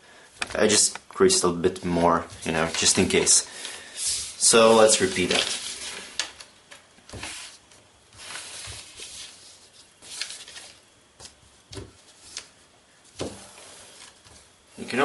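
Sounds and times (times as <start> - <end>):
paper rustling and crinkling: 2.2 - 6.5, 7.1 - 12.5.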